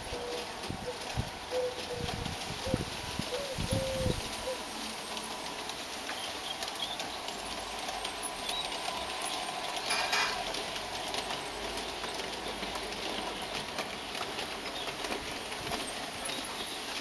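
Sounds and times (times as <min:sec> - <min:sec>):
steady rolling noise: 0:00.0 - 0:17.0
model train wheels clicking: 0:05.0 - 0:17.0.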